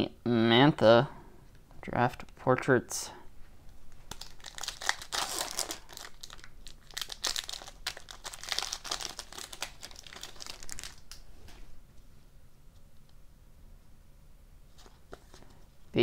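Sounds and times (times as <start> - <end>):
foil wrapper tearing and crinkling: 4.1 - 11.2.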